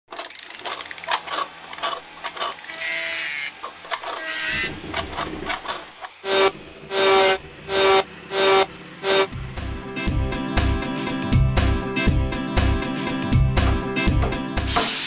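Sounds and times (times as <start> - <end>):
ratchet clicks and clacks: 0.1 - 6.1
loud pitched toot: 6.2 - 9.4.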